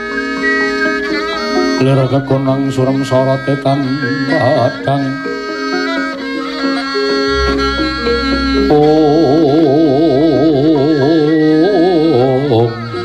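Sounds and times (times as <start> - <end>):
man singing with wide vibrato: 1.8 - 5.3, 7.3 - 13.0
deep low drone: 7.3 - 11.2
gamelan held notes: 7.3 - 11.4.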